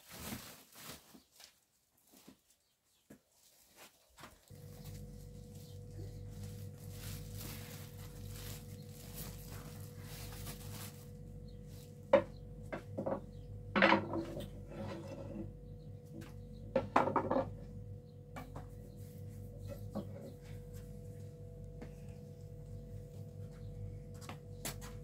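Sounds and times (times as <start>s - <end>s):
plastic sack-cloth rustling: 0.0s - 12.0s
steady faint hum: 4.4s - 25.0s
knocks and clatters of kitchenware: 12.1s - 15.1s, 16.2s - 17.7s, 18.3s - 18.8s.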